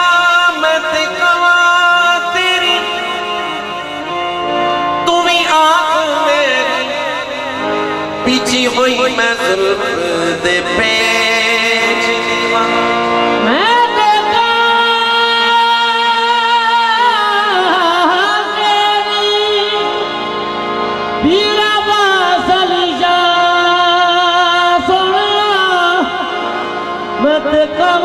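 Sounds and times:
man singing: 0:00.0 - 0:20.4, 0:21.2 - 0:28.0
harmonium chords: 0:00.0 - 0:28.0.

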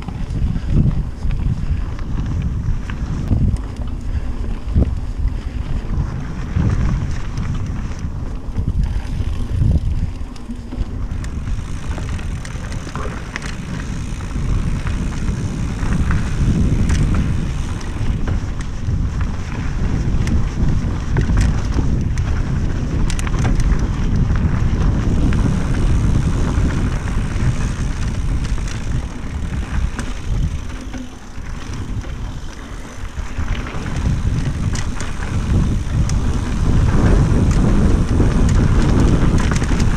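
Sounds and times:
bike clicks and rattles: 0:00.0 - 0:39.9
wind buffeting microphone: 0:00.0 - 0:39.9
tyres rumbling over dirt: 0:06.0 - 0:39.9.

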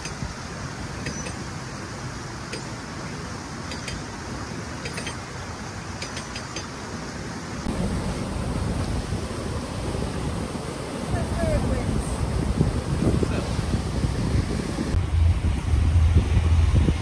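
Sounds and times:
wind buffeting microphone: 0:07.7 - 0:17.0.

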